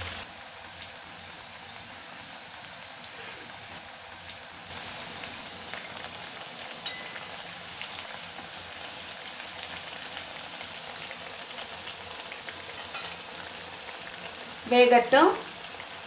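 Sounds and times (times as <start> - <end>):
food deep-frying in hot oil: 0.0 - 16.0.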